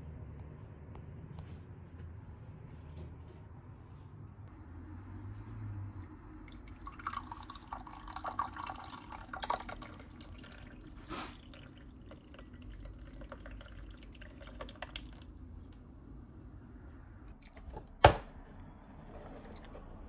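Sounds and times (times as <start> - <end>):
liquid dripping and splashing: 5.8 - 16.2
tea pouring into a cup: 5.9 - 16.0.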